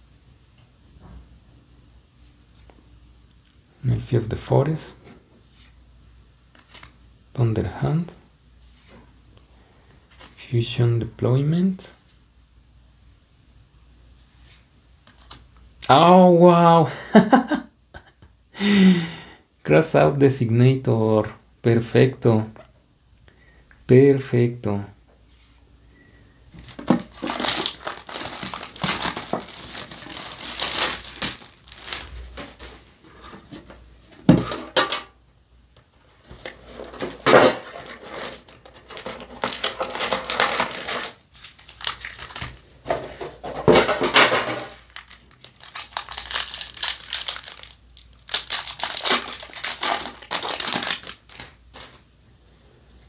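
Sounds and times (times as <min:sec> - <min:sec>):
foil wrappers crinkling: 0:26.5 - 0:32.9, 0:36.4 - 0:42.6, 0:43.8 - 0:51.9.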